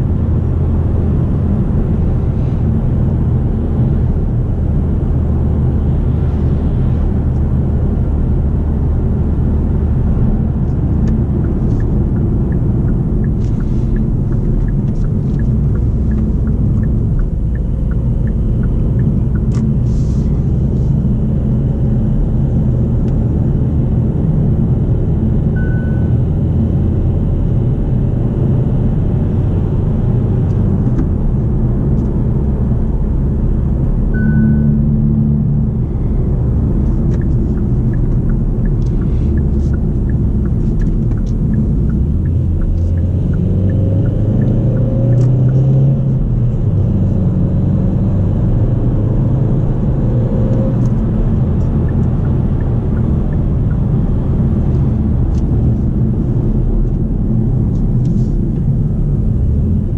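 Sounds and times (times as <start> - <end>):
engine and road rumble: 0.0 - 59.9
short beep: 25.6 - 26.2, 34.1 - 34.8.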